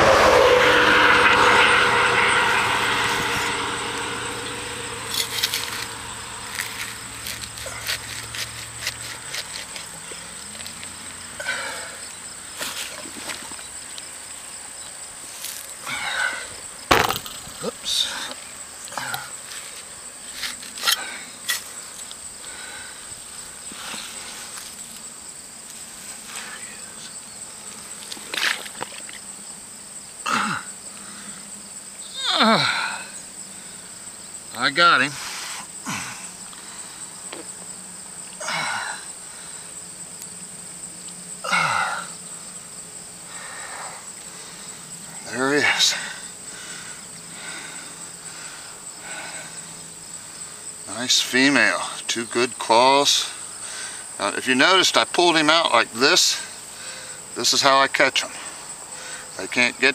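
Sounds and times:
airplane engine drone: 0:00.0 - 0:13.8, 0:15.2 - 0:29.2, 0:30.2 - 0:51.2
high insect trill: 0:00.0 - 0:59.9
hand digging through mud and grass: 0:06.5 - 0:09.9.

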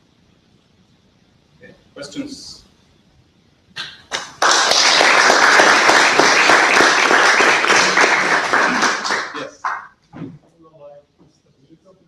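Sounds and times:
audience applauding: 0:04.0 - 0:10.0.

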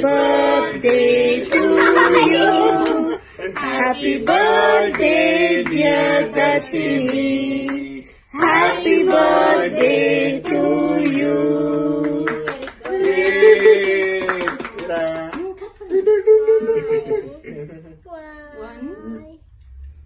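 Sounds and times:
group of voices singing: 0:00.0 - 0:13.9
hand claps: 0:02.8 - 0:05.9, 0:12.0 - 0:15.7.

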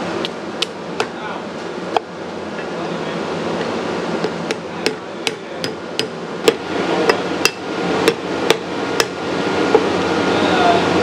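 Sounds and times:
cleaver chopping crab on wood: 0:04.2 - 0:09.2.

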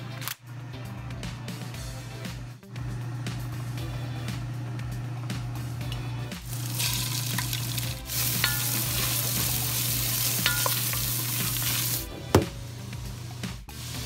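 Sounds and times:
meat sizzling in hot oil: 0:06.4 - 0:12.1
spoon clicks: 0:10.3 - 0:11.7.

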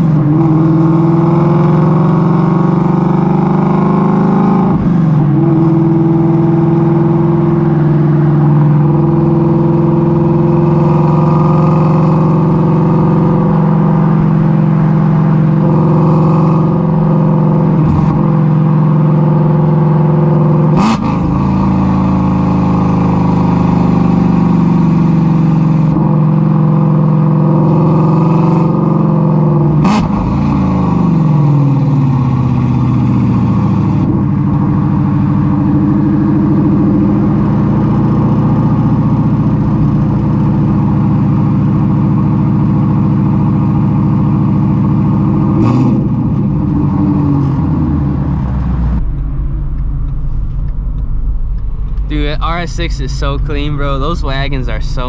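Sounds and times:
loud car engine: 0:00.0 - 0:55.0
exhaust crack: 0:29.6 - 0:55.0.

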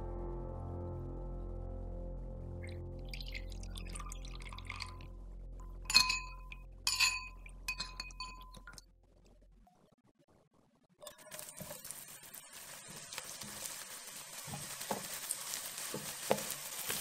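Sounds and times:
spoon clinking against glass: 0:05.9 - 0:08.8
spoon stirring sauce: 0:05.9 - 0:08.8, 0:14.5 - 0:17.0.

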